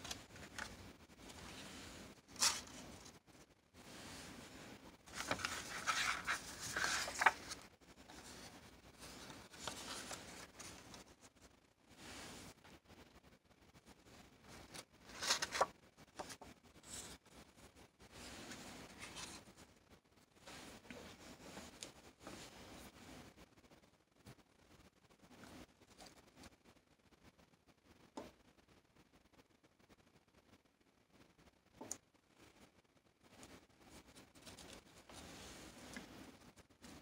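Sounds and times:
paper cards rustling: 0.0 - 3.2, 5.0 - 11.3, 14.5 - 17.2, 34.3 - 36.1.

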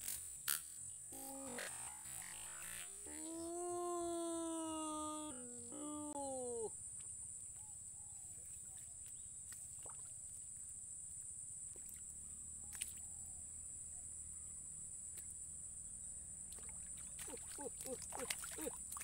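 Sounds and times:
small ticks: 0.0 - 3.4, 11.1 - 13.1, 15.0 - 15.5
high-pitched insect drone: 0.0 - 6.7
faint water sounds: 1.1 - 13.3, 16.3 - 19.0.

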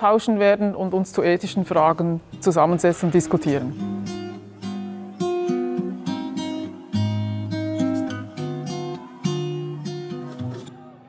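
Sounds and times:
strummed acoustic guitar chords: 3.3 - 11.0.

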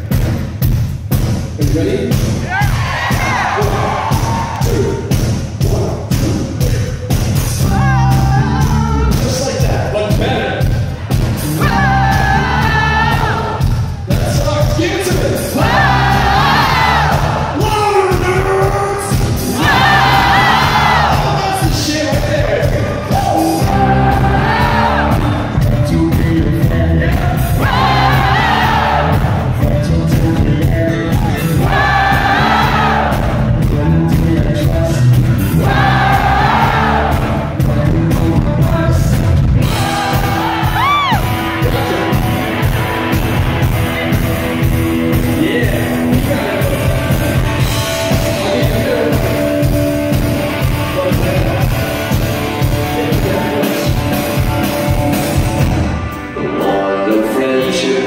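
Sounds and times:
live rock band playing: 0.0 - 58.0
crowd shouts and whoops: 2.5 - 5.0, 19.6 - 21.4, 39.7 - 41.5
lead singer singing: 11.4 - 42.8, 56.2 - 58.0.

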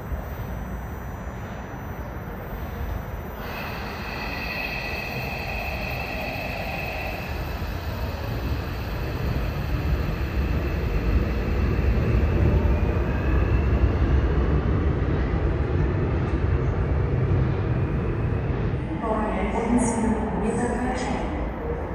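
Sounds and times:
electric train rumbling: 0.0 - 21.9
train motor whine: 3.2 - 13.6.

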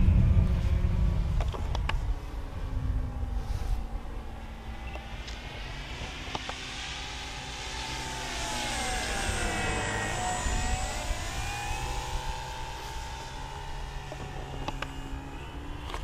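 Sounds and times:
model plane motor and propeller: 0.2 - 16.0.

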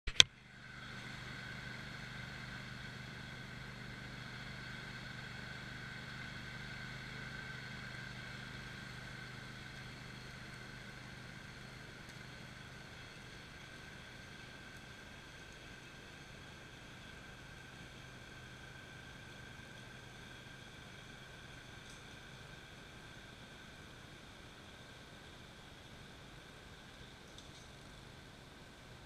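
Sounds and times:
sharp click: 0.1 - 0.3
lawn mower engine running: 0.1 - 25.3.

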